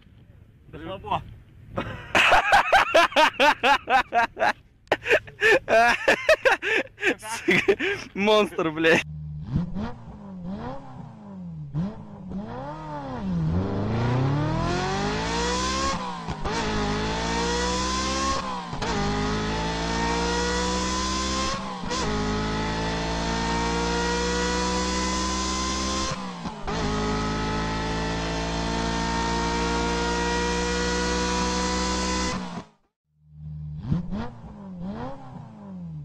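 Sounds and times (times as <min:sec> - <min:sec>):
motorcycle engine revving: 0:09.0 - 0:36.0.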